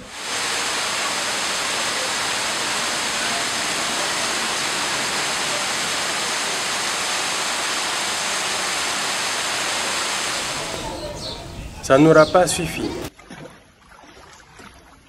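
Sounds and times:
water gushing onto sand: 0.0s - 11.7s
heavy rain pouring: 0.0s - 11.9s.

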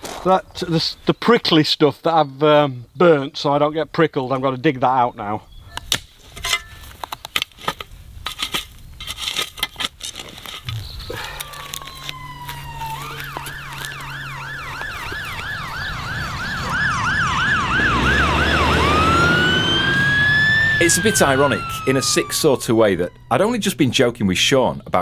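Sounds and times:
spade scraping roots in soil: 6.2s - 14.0s
fire engine running: 11.0s - 24.5s
fire engine siren: 11.1s - 24.2s.

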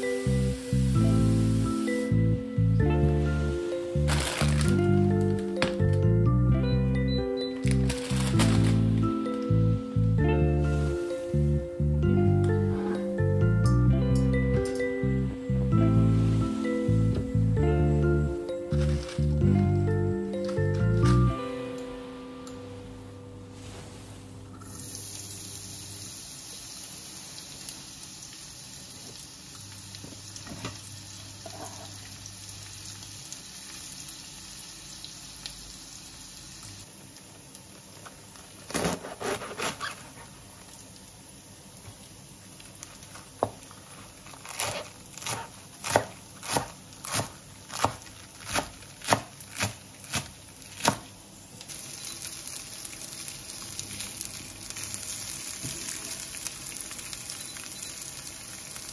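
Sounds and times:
onion sizzling in a pan: 0.0s - 2.2s, 24.7s - 38.7s, 39.6s - 58.9s
knife chopping cabbage on board: 44.4s - 51.1s.

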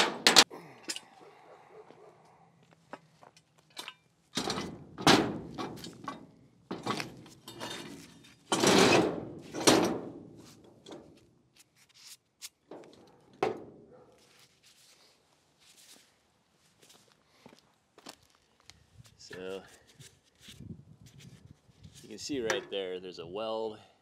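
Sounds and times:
metal parts clanking on steel deck: 0.0s - 1.0s, 3.7s - 11.1s.

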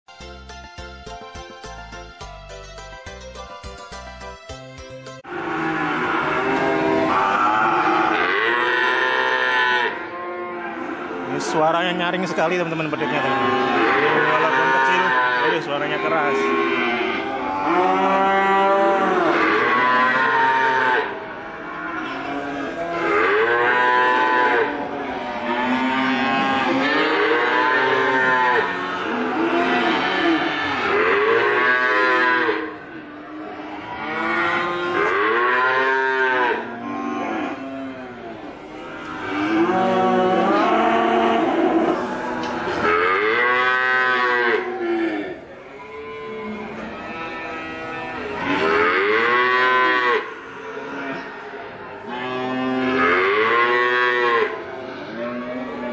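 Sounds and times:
calf mooing: 5.3s - 51.4s, 52.0s - 55.9s.

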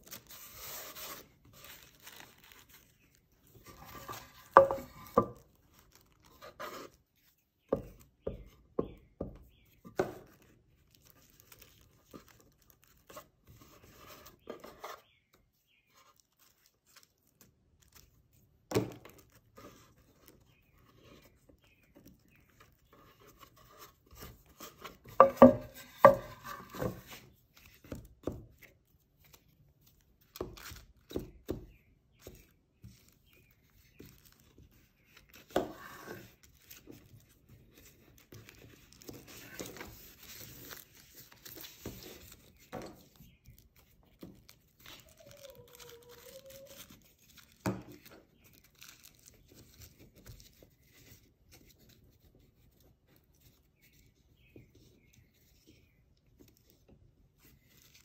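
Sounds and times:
tissue paper rustling and crinkling: 0.0s - 7.5s, 10.3s - 14.7s, 15.6s - 25.1s, 32.2s - 52.0s, 57.4s - 58.0s.

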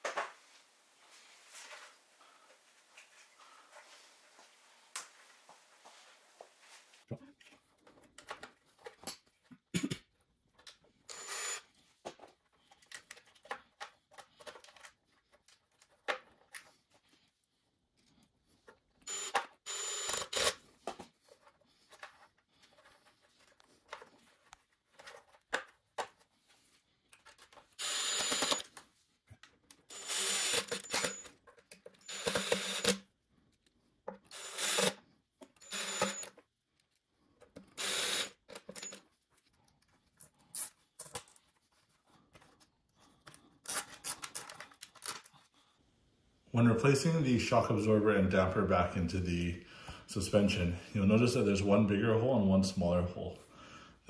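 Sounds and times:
small clicks and handling noises: 7.4s - 9.6s, 12.1s - 17.1s, 20.8s - 29.9s, 30.6s - 32.9s, 38.4s - 45.5s.

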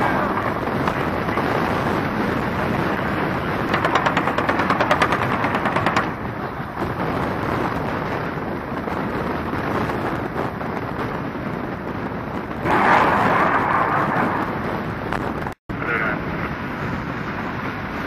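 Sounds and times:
helicopter rumbling in flight: 0.0s - 16.7s.

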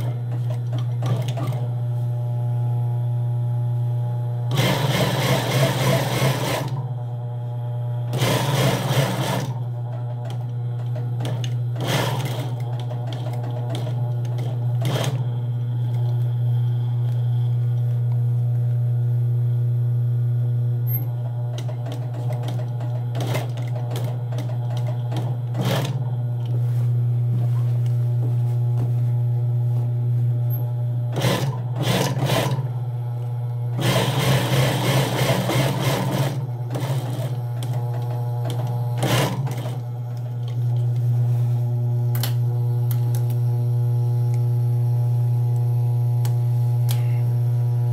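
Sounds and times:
sewing machine stitching: 0.0s - 1.7s, 4.5s - 6.9s, 8.1s - 16.2s, 20.9s - 26.1s, 31.1s - 32.7s, 33.7s - 40.8s
sewing machine motor humming: 0.0s - 1.8s, 4.5s - 18.5s, 20.8s - 26.6s, 30.4s - 47.9s.

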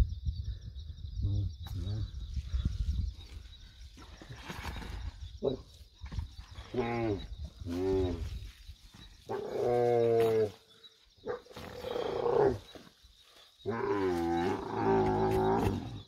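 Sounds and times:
camel groaning: 6.6s - 8.3s, 9.3s - 10.6s, 11.3s - 12.9s, 13.6s - 16.0s.

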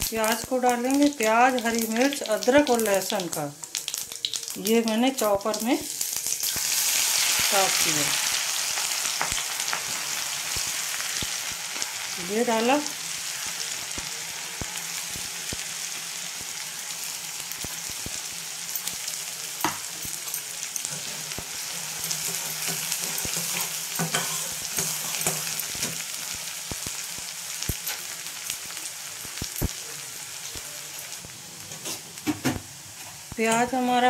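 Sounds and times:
food sizzling in hot oil: 0.0s - 34.0s
metal spatula clicking and scraping: 22.0s - 25.9s.

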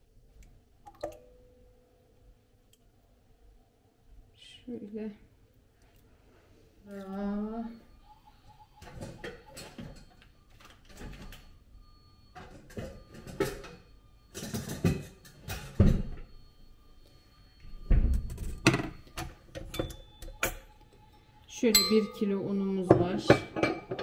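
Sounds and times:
bowls and utensils clattering: 12.4s - 16.1s, 22.9s - 24.0s.

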